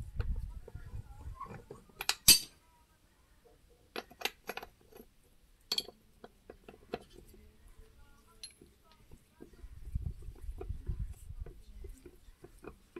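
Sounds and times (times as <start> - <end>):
metal tools clinking: 2.0 - 2.6, 5.7 - 6.0.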